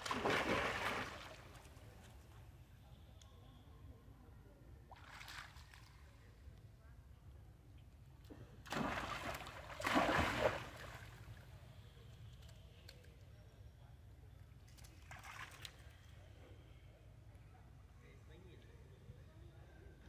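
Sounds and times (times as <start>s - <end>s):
water splashing: 0.0s - 1.6s, 8.7s - 11.0s.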